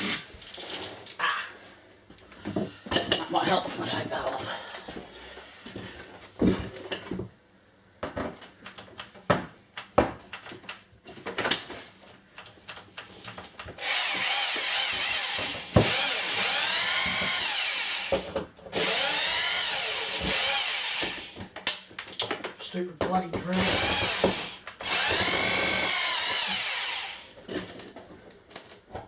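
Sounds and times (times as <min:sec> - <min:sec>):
knocks and clicks of hand work: 0:08.0 - 0:11.6
power drill running: 0:13.8 - 0:21.4, 0:23.6 - 0:27.4.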